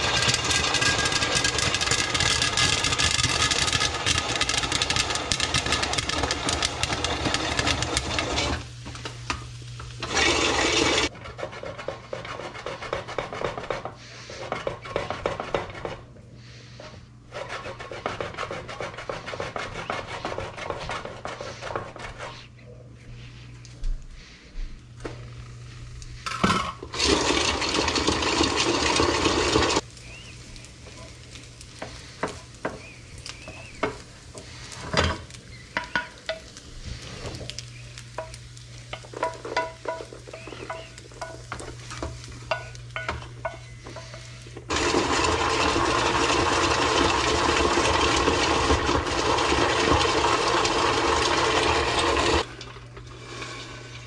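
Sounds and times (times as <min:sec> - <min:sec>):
popcorn rattling in shaken pot: 0:00.0 - 0:16.0, 0:26.3 - 0:54.0
wooden spoon scraping a skillet: 0:00.0 - 0:23.6, 0:25.4 - 0:54.0.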